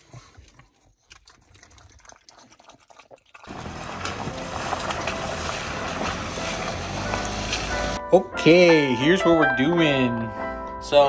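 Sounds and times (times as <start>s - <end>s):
water running: 3.3s - 8.0s.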